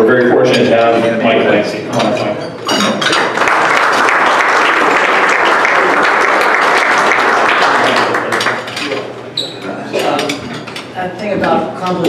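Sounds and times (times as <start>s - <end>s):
audience applauding: 3.0s - 9.0s.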